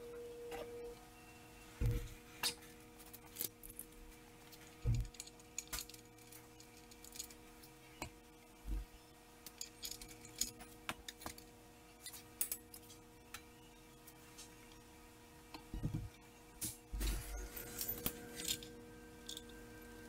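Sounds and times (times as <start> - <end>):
metal tools clinking: 4.7 - 7.4, 9.5 - 11.4, 17.2 - 19.5.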